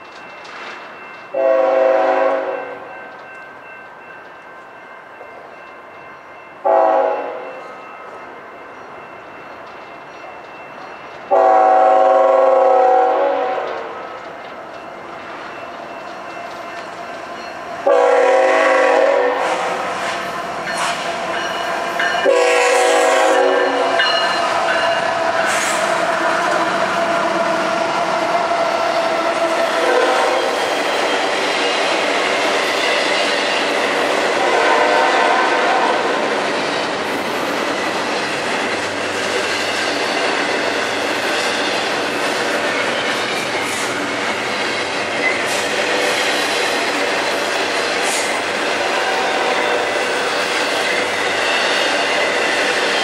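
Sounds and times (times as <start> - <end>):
train rumbling and rattling: 0.0 - 53.0
locomotive air horn blasts: 1.4 - 2.9, 6.6 - 7.6, 11.3 - 14.0, 17.8 - 20.1, 22.2 - 24.0, 29.8 - 30.6, 34.4 - 36.1.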